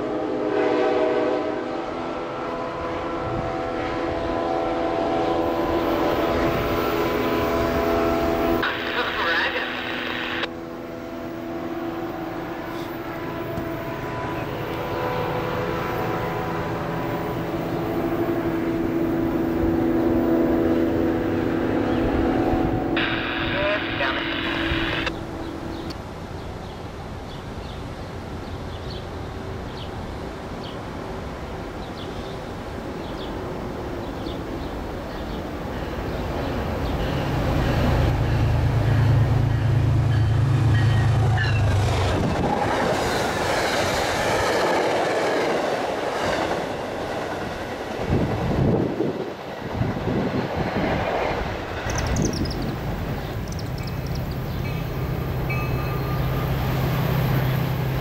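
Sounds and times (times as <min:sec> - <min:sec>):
diesel locomotive engine hum: 0:00.0 - 0:58.0
train wheels rushing by: 0:34.1 - 0:58.0.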